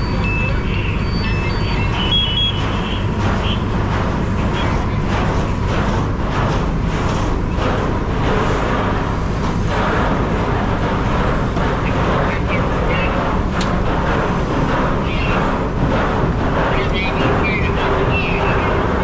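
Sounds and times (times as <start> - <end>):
two-tone electronic beeping: 0.0 - 3.6
fire truck engine rumbling: 0.0 - 19.0.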